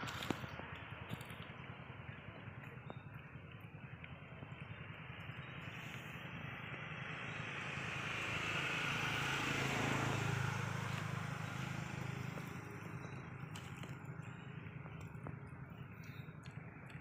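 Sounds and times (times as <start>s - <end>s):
vehicle passing by: 4.8s - 17.0s.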